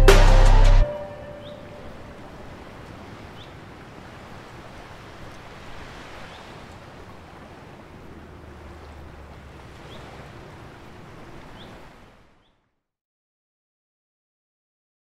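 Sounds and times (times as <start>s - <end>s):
wind and water: 0.8s - 12.8s.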